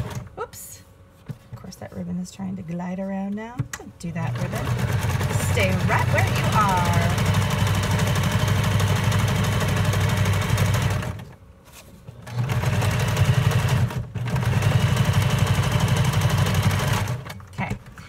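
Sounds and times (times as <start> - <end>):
sewing machine stitching paper: 4.2 - 11.4, 12.2 - 17.4.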